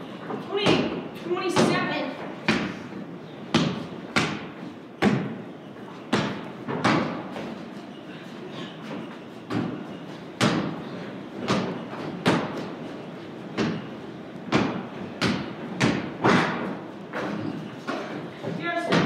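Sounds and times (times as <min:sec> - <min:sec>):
basketball bouncing on wooden floor: 0:03.5 - 0:05.4, 0:06.1 - 0:07.2.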